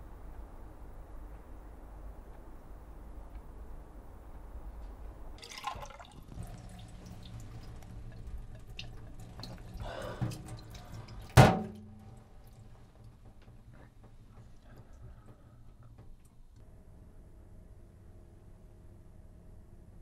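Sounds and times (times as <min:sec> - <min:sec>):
low steady hum: 0:00.0 - 0:20.0
water splashing from tap: 0:05.4 - 0:12.6
water drips: 0:05.4 - 0:16.4.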